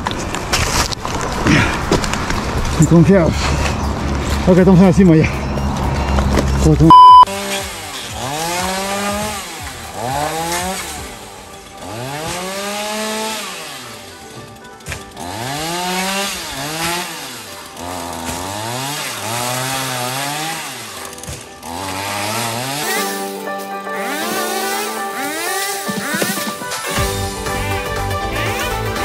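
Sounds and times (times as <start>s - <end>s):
chainsaw revving: 6.9s - 29.0s
music: 7.4s - 29.0s.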